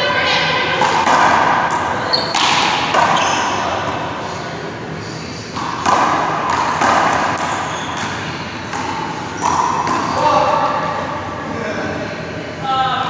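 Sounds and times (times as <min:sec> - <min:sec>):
ball slapping hard court: 0:00.8 - 0:03.5, 0:05.5 - 0:10.3.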